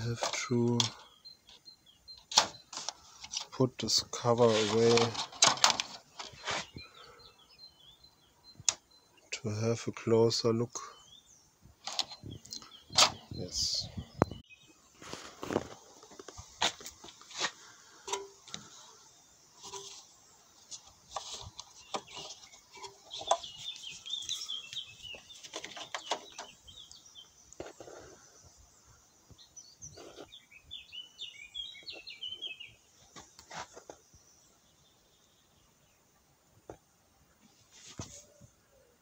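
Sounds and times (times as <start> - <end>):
clicks and knocks of handling: 0.0 - 1.0, 4.6 - 6.4, 11.8 - 13.2, 18.0 - 18.7, 20.7 - 26.6
birds chirping: 0.0 - 39.0.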